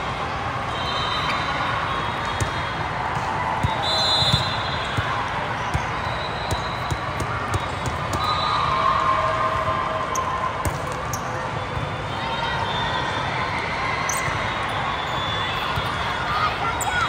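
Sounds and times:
murmur of crowd voices: 0.0 - 17.0
volleyball being hit and bouncing: 2.4 - 8.3, 10.6 - 11.9.

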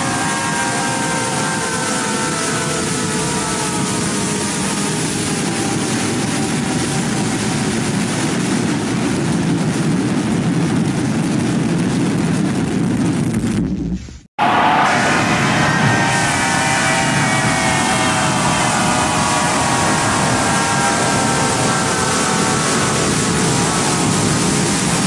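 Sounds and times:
dense noisy rumble: 0.0 - 25.0.

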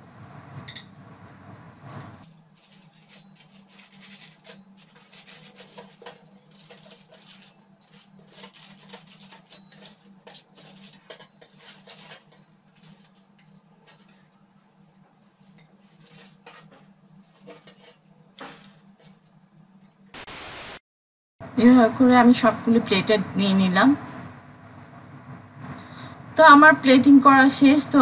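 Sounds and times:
aluminium foil crinkling: 2.5 - 14.3, 15.9 - 16.8
metal tongs scraping on tray: 2.6 - 14.4, 15.5 - 19.3.

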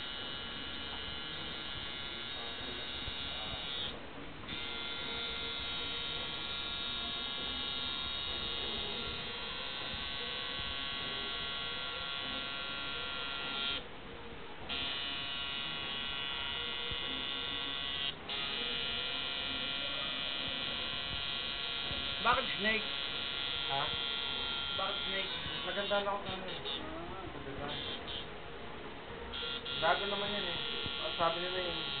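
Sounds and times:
tattoo machine buzzing: 0.0 - 13.9, 14.7 - 26.8, 27.6 - 28.3, 29.3 - 32.0.

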